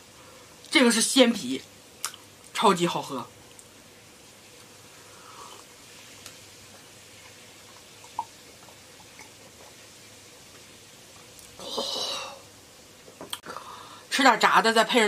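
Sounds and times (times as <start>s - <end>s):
woman sighing ahh: 11.6s - 12.4s.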